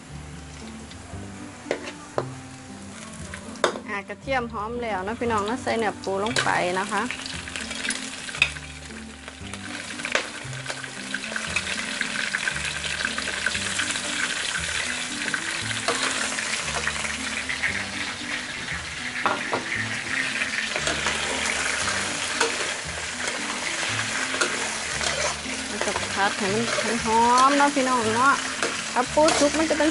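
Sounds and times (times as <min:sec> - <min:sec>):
crab and garlic sizzling in oil: 0:00.0 - 0:29.9
metal spatula scraping a wok: 0:01.6 - 0:02.1, 0:10.0 - 0:29.9.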